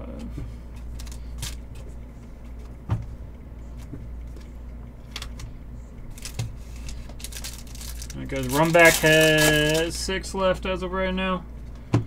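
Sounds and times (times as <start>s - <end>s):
steady low hum: 0.0s - 12.0s
trading cards rustling and clicking: 0.8s - 1.9s, 6.1s - 10.6s.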